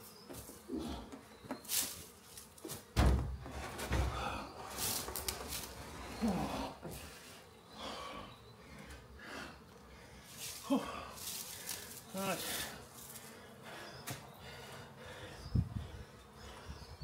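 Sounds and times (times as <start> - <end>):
wooden boxes knocking and thudding: 2.9 - 5.7.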